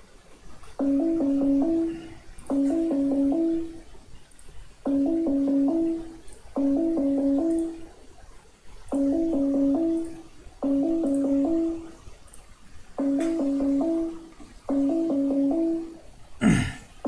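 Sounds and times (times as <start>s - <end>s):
video call ringing jingle: 0.8s - 3.8s, 4.9s - 7.8s, 8.9s - 12.0s, 13.0s - 16.0s.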